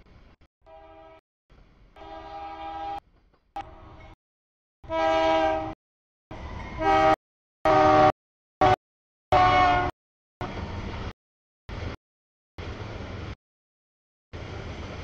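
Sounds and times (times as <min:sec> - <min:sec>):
locomotive air horn blasts: 0:00.6 - 0:01.2, 0:02.0 - 0:03.0, 0:04.8 - 0:05.8, 0:06.8 - 0:09.9.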